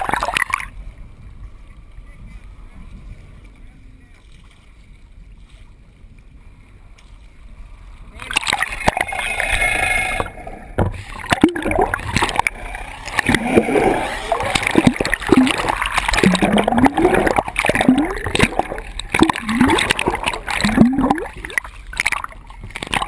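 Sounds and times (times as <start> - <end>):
bubbling glides: 0.0 - 0.8, 8.1 - 23.0
water splashing and gurgling: 0.0 - 23.0.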